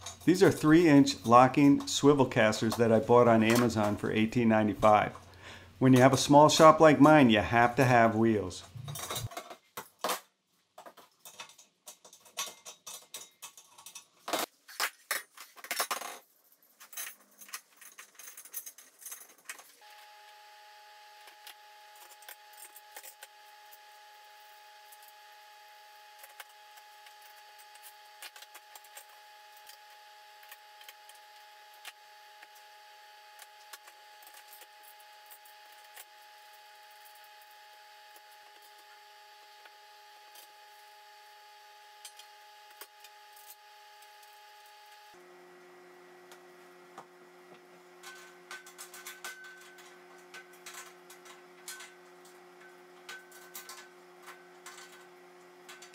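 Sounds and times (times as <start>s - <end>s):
metal clinks and rattles: 8.6s - 10.2s, 10.8s - 19.8s.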